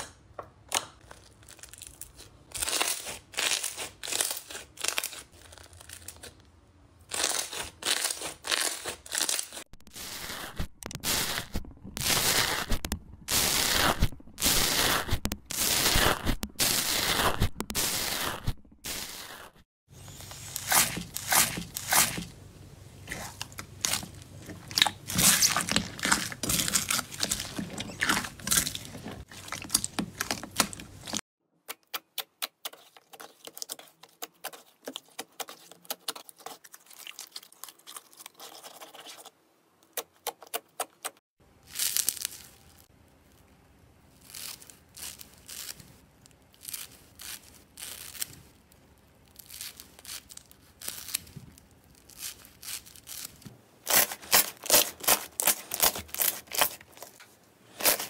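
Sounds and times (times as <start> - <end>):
slime squishing and crackling: 1.0 - 6.4, 7.0 - 22.3, 23.0 - 31.2, 41.6 - 43.5, 44.1 - 58.0.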